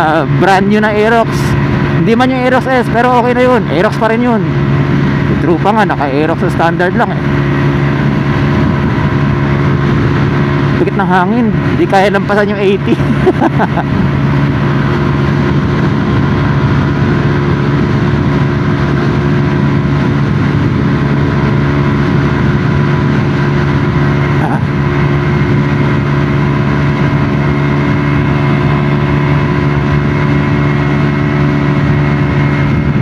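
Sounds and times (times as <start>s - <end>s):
scooter engine at high revs: 0.0s - 33.0s
wind rushing over microphone: 0.0s - 33.0s.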